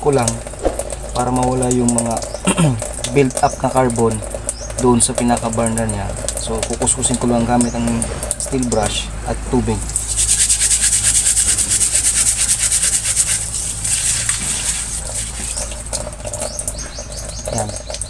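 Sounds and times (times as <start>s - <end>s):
running tap water: 0.0s - 18.0s
steel wool scrubbing metal: 10.1s - 15.8s.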